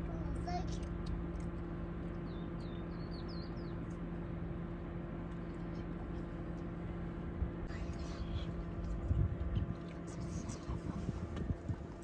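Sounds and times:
steady low hum: 0:00.0 - 0:12.0
small bird chirping: 0:02.2 - 0:03.8.

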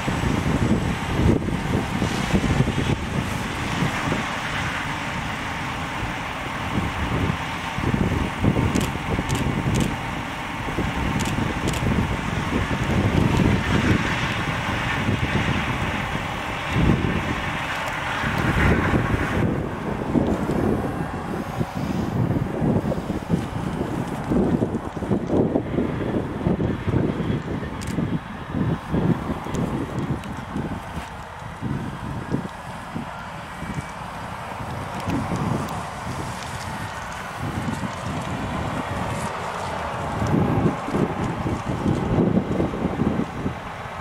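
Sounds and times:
combine harvester drone: 0:00.0 - 0:44.0
wind buffeting microphone: 0:00.0 - 0:44.0.

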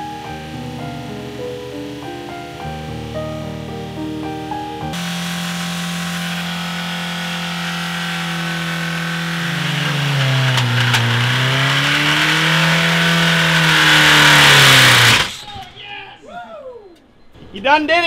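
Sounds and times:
engine revving high: 0:04.9 - 0:15.4.

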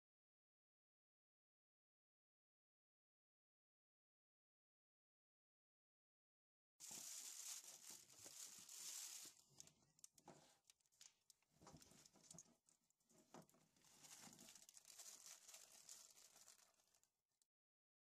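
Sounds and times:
plastic bag crinkling: 0:06.8 - 0:12.6, 0:13.3 - 0:17.1.

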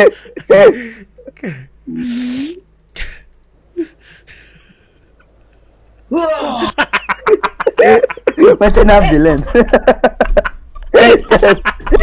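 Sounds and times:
man laughing hard: 0:06.1 - 0:12.0.

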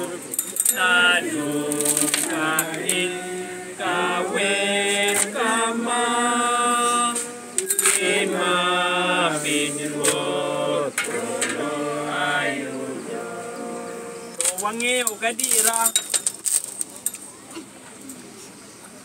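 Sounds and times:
people singing a hymn: 0:00.0 - 0:14.8.

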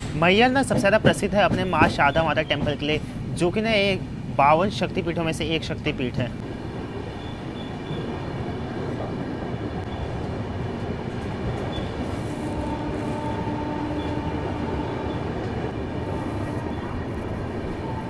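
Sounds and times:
train wheels rumbling on rail: 0:00.0 - 0:18.0
rushing air: 0:06.4 - 0:18.0.

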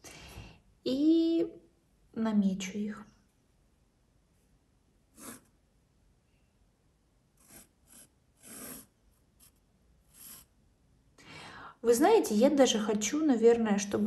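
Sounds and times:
pencil scratching on paper: 0:05.1 - 0:05.6, 0:07.4 - 0:10.5.

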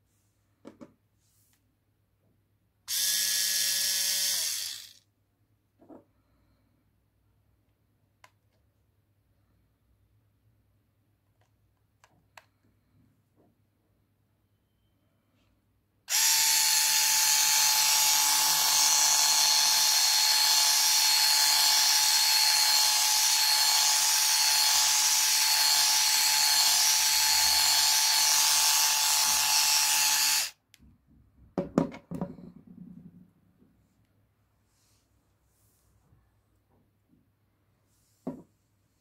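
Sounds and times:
electric shaver whining: 0:02.9 - 0:05.0, 0:16.1 - 0:30.6.

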